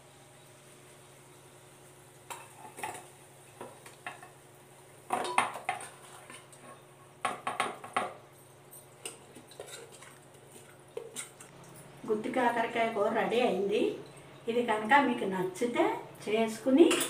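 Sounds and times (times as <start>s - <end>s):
spatula scraping a pan: 5.2s - 6.9s, 9.1s - 11.4s.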